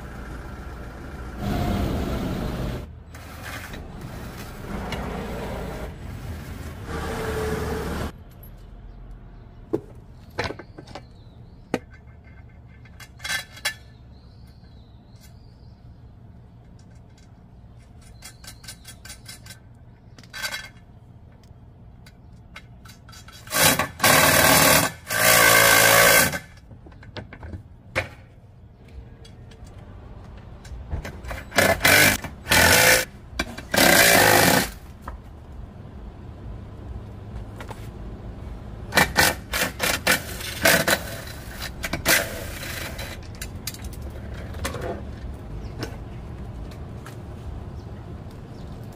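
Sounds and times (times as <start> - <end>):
tools clicking and knocking: 16.6 - 23.6.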